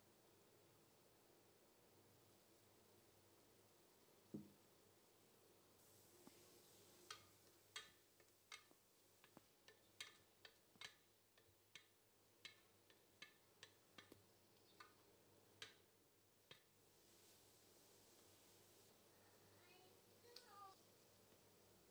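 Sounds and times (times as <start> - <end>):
wooden spoon tapping metal pot: 7.1 - 16.7.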